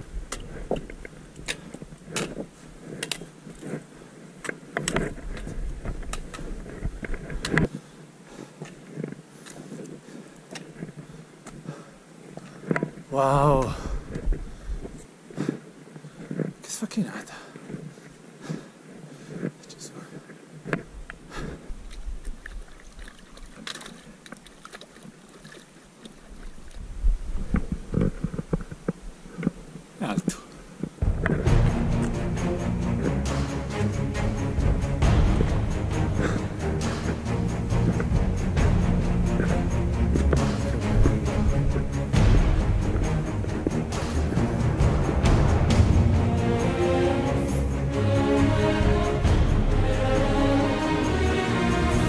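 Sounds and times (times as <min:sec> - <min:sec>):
footsteps on stones: 0:00.0 - 0:16.8, 0:30.8 - 0:31.7
trekking poles clicking on stones: 0:00.0 - 0:16.8, 0:17.5 - 0:31.6, 0:34.5 - 0:45.4
wind buffeting microphone: 0:30.9 - 0:32.0
faint low rumble: 0:31.0 - 0:48.2.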